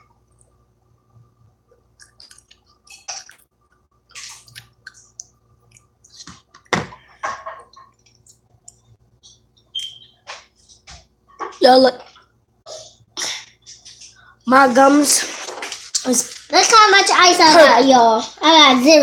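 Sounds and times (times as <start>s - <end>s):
chewing: 1.7s - 6.7s.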